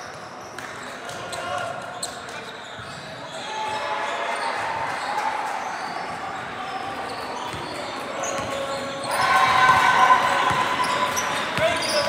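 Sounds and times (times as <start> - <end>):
voices echoing in hall: 0.0 - 12.0.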